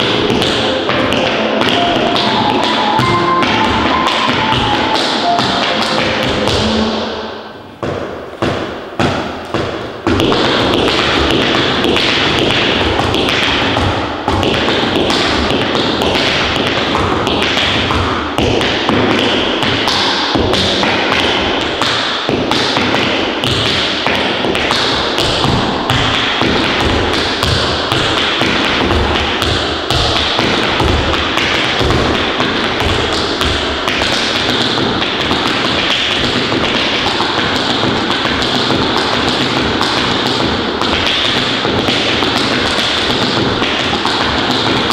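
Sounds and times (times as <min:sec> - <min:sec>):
dance shoes tapping on wooden floor: 0:00.0 - 0:07.1, 0:07.8 - 0:44.9.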